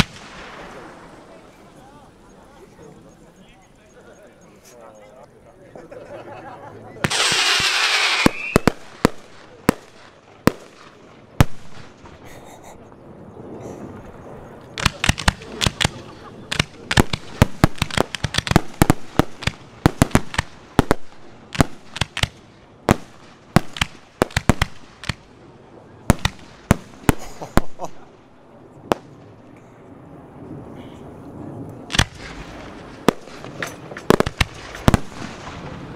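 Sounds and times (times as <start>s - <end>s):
firework bangs: 0.0s - 1.6s, 7.0s - 12.4s, 14.7s - 25.4s, 26.0s - 29.4s, 31.9s - 35.9s
firework launch hiss: 7.0s - 10.1s.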